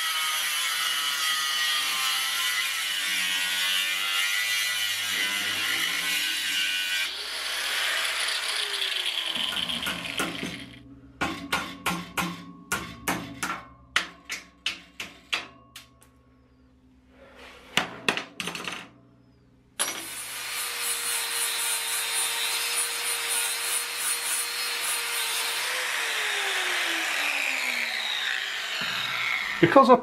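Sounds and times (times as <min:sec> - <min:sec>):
angle grinder cutting steel: 0:00.0 - 0:10.8, 0:19.8 - 0:30.0
hammer striking steel plate: 0:09.4 - 0:16.0.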